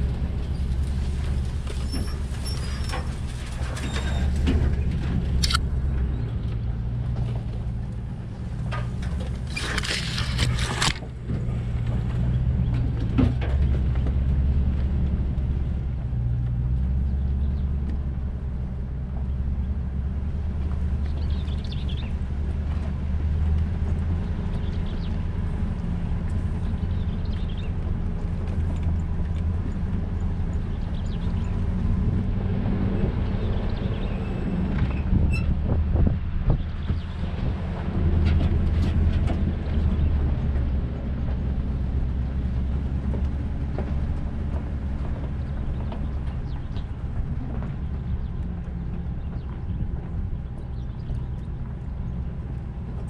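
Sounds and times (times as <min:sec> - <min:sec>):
brush scraping vehicle: 0:00.0 - 0:53.0
vehicle engine rumble: 0:00.0 - 0:53.0
sharp click: 0:05.4 - 0:05.6.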